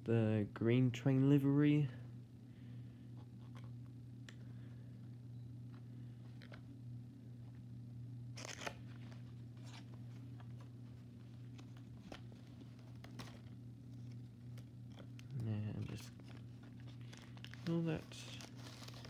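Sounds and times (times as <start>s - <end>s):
steady low hum: 0.0s - 19.0s
cardboard box and wrapping rustling: 8.5s - 19.0s.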